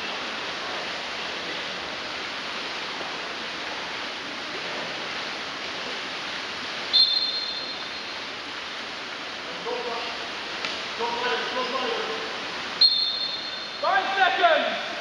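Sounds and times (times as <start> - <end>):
swimmers splashing in a pool: 0.0 - 15.0
referee's whistle blast: 6.9 - 7.8, 12.8 - 14.0.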